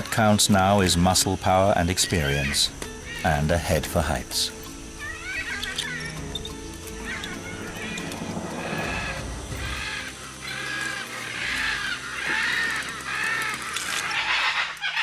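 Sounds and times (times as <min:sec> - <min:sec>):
parrot chicks squawking: 0:04.4 - 0:15.0.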